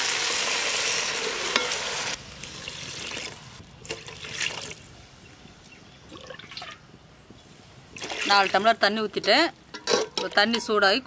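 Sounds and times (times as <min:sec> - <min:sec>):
water pouring into a pot: 0:02.6 - 0:04.8, 0:06.1 - 0:06.8.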